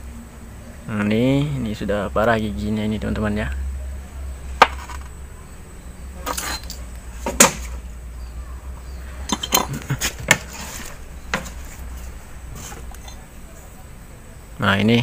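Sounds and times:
steady low hum: 0.0 - 15.0
metal parts clinking: 6.2 - 6.9, 9.3 - 13.3.

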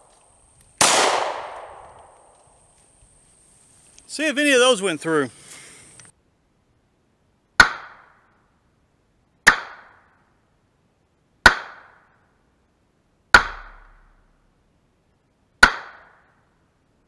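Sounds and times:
pistol shots: 0.8 - 2.3.

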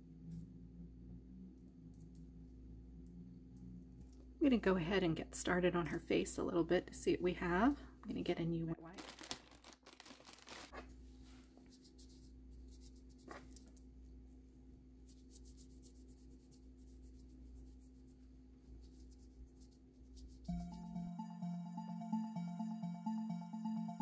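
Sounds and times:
wet wipe rubbing: 9.0 - 10.8, 15.0 - 20.7
wipe pulled from packet: 9.0 - 10.8.

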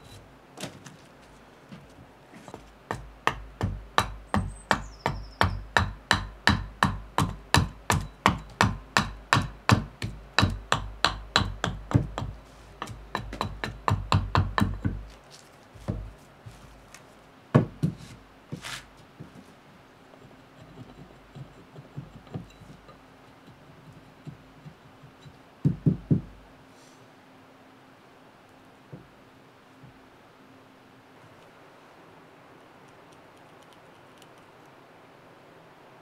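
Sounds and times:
axe chopping wood: 2.9 - 15.2.

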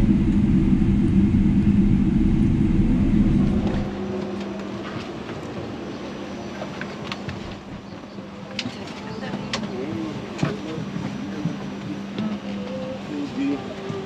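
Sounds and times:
cabin hum: 0.0 - 4.3
aircraft cabin low rumble: 0.0 - 14.0
passengers moving clicks and knocks: 6.5 - 14.0.

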